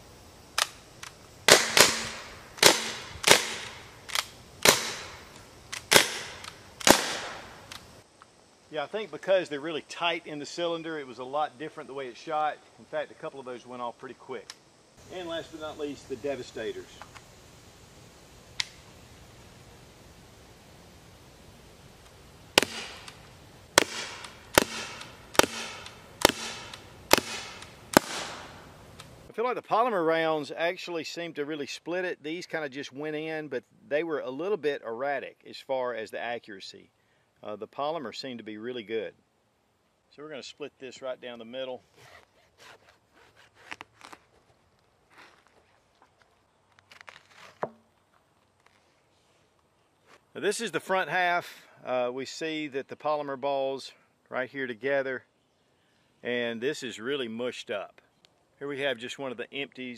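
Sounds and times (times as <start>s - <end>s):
air pistol shots: 1.5s - 7.8s, 22.6s - 29.1s.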